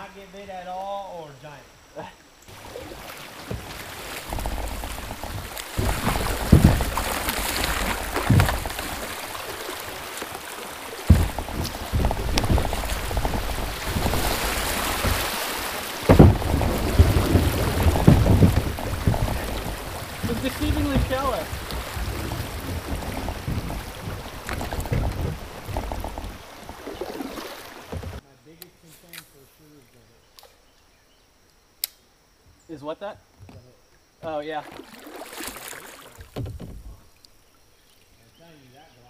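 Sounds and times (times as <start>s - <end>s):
paddle strokes splashing: 2.5s - 28.2s, 34.6s - 37.0s
water rushing over riffle: 2.5s - 28.2s
sharp knocks: 3.5s - 9.4s, 11.0s - 26.8s.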